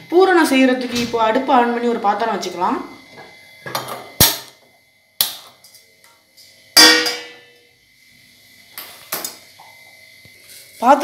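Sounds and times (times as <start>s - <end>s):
metal pan clanging on grate: 6.8s - 7.4s.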